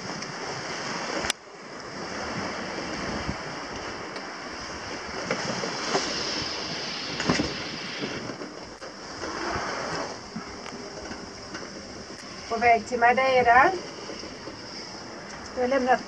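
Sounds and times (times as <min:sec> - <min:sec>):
sea water rushing: 0:00.0 - 0:16.0
wind: 0:00.0 - 0:16.0.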